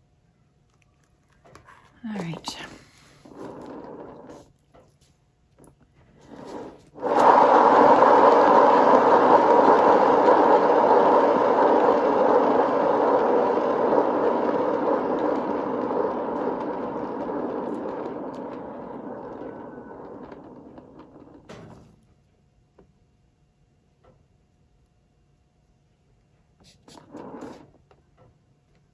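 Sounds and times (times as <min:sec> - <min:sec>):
turntable bearing rushing rumble: 0:03.2 - 0:04.5, 0:06.2 - 0:21.9, 0:26.9 - 0:27.8.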